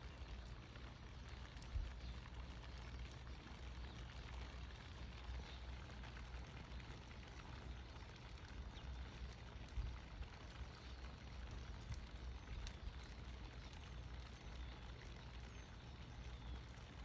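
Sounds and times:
light rain on pavement: 0.0 - 17.0.

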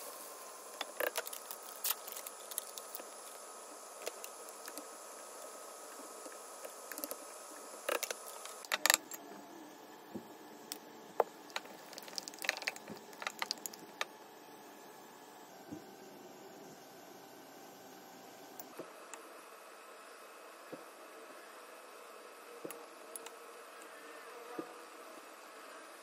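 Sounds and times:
pot simmering hiss: 0.0 - 8.7, 9.8 - 14.4.

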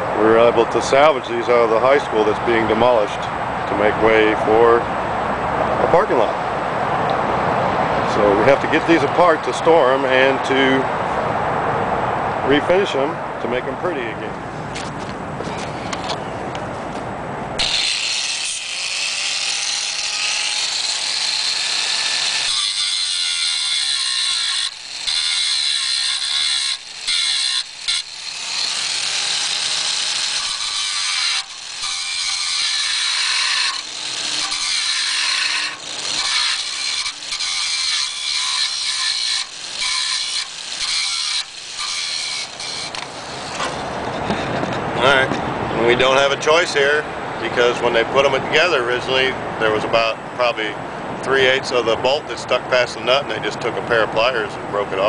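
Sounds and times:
angle grinder grinding metal: 17.6 - 44.5.

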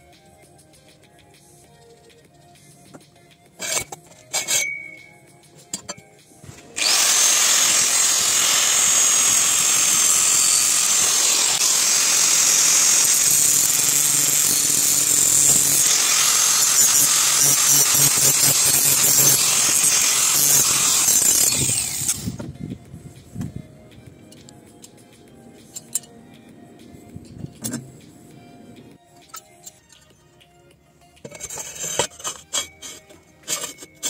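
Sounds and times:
angle grinder cutting steel pipe: 3.6 - 5.0, 6.8 - 22.4, 31.2 - 34.0
metal clink: 3.6 - 5.1.

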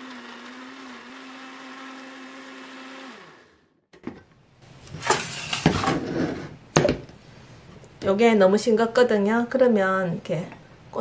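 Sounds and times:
blender running: 0.0 - 3.8.

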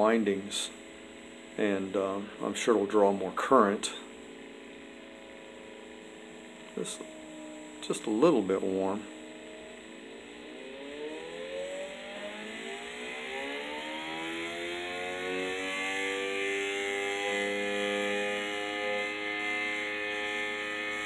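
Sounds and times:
electric motor whining: 4.6 - 21.0.

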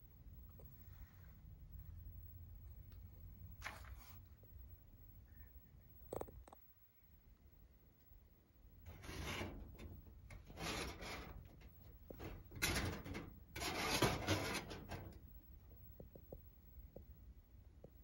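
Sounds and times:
rough rubbing noises: 8.9 - 15.2.

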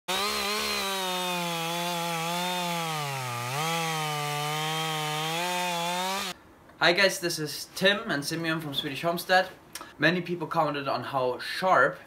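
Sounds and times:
chainsaw cutting through log: 0.1 - 6.4.

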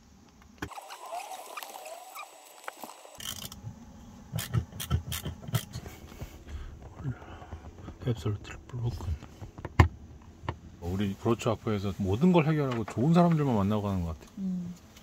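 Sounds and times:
sharp clicks and knocks: 4.4 - 10.6.

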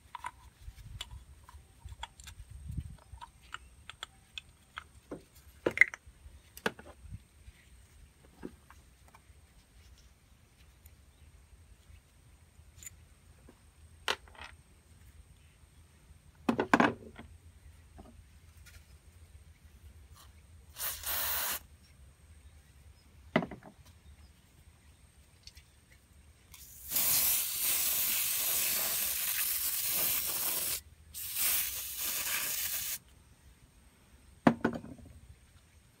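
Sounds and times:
aerosol spray hissing: 20.7 - 21.7, 26.6 - 33.0.

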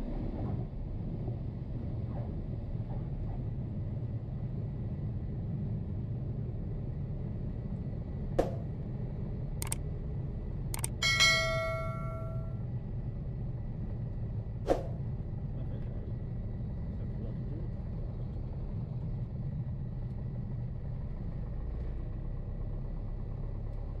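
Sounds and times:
small plane engine droning: 0.0 - 24.0
sharp click: 9.6 - 9.8, 10.8 - 11.0.

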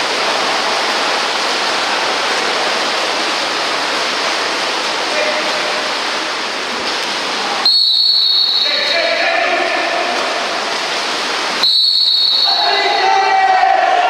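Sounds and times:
water splashing: 0.0 - 14.0
referee's whistle blasts: 7.6 - 9.2, 11.6 - 13.3
people shouting: 12.4 - 14.0.

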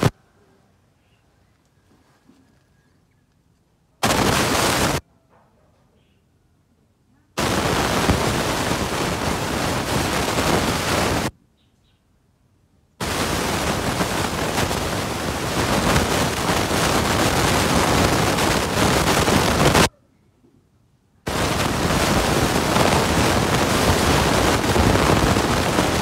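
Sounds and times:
loud rushing hiss: 4.0 - 5.0, 7.4 - 11.3, 13.0 - 19.9, 21.3 - 26.0.

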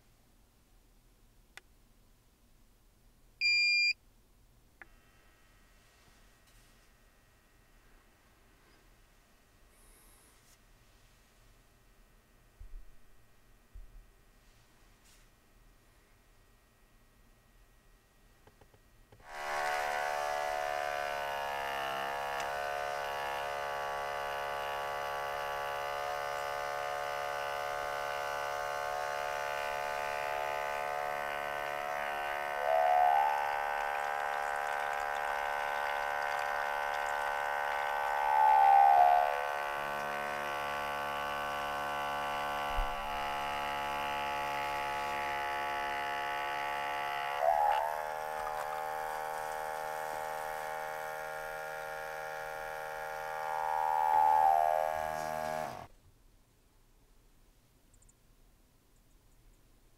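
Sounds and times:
espresso machine pump buzzing: 17.8 - 55.9.

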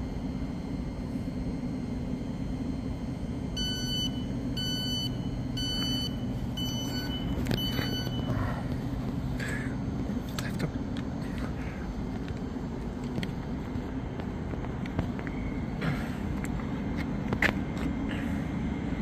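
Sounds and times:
train low hum: 0.0 - 19.0
high door warning beeps: 3.5 - 8.5.

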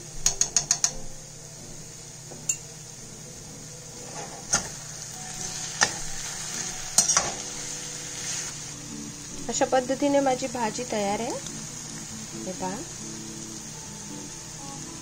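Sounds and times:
spatula clinking on pan: 7.0 - 7.4.

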